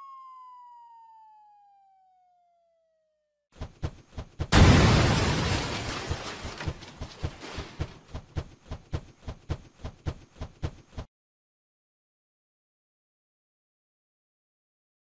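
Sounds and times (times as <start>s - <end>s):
cartoon explosion blast: 4.5s - 5.8s.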